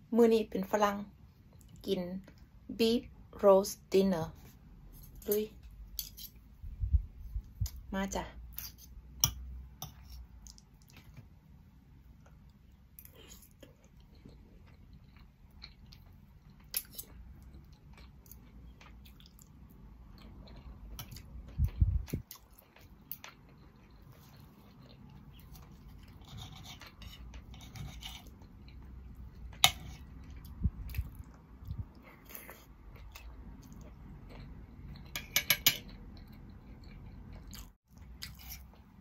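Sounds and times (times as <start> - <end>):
chewing: 13.0 - 38.9
cutlery clinking on a plate: 35.2 - 35.9.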